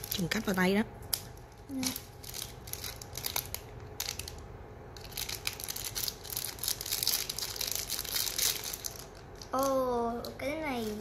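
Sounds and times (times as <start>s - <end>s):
plastic wrapper crinkling and tearing: 0.0s - 9.9s.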